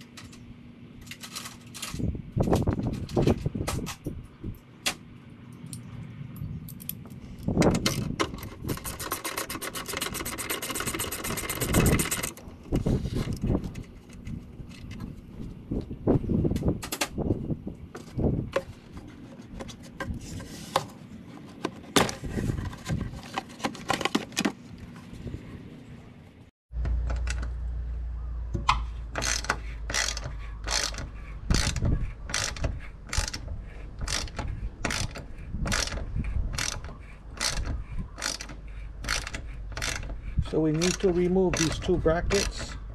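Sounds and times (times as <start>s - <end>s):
socket ratchet clicking: 29.2s - 33.4s, 34.0s - 40.1s, 40.8s - 42.6s.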